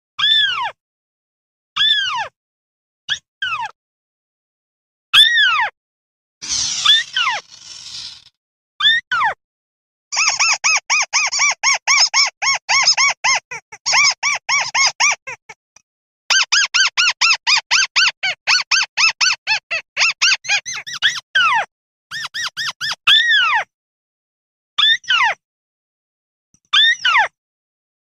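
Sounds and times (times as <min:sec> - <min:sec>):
bird calling squeaky notes: 0:06.4 - 0:08.3, 0:20.0 - 0:21.2.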